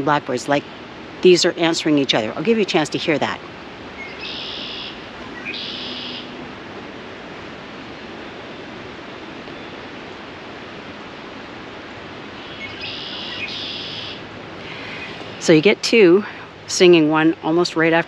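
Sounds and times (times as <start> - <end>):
steady background hiss: 0.0 - 18.0
blackbirds singing: 4.0 - 6.3, 12.4 - 15.7.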